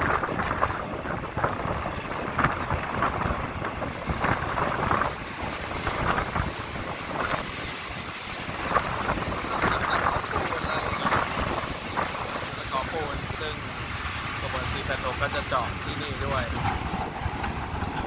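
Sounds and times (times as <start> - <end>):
train coach rattling: 0.0 - 18.0
train rumbling on track: 0.0 - 18.0
wind buffeting microphone: 0.0 - 18.0.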